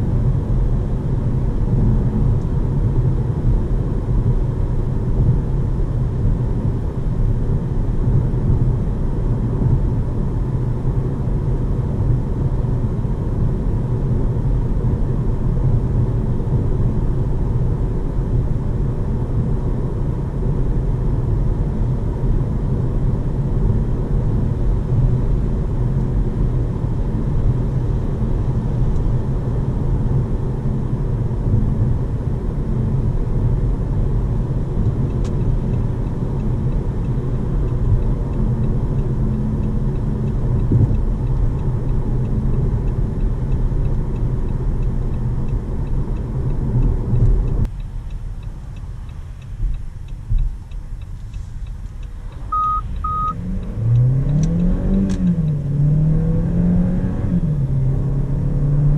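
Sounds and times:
car road and engine noise: 0.0 - 58.9
short high beeps: 52.5 - 53.4.

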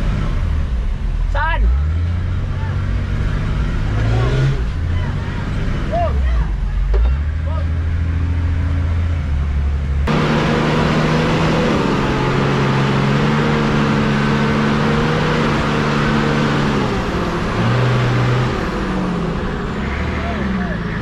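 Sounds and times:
vehicle engine running under load: 0.0 - 21.0.

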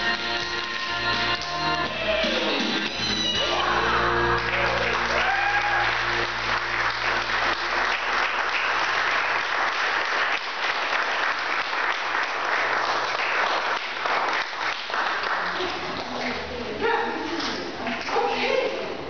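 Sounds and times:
audience applauding: 3.3 - 16.4.

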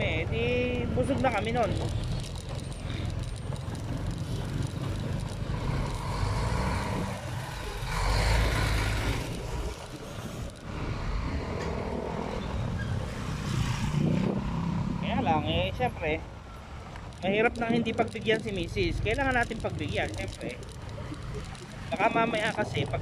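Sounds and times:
motorcycle engine running: 0.8 - 8.0
wind rushing: 10.2 - 15.5.

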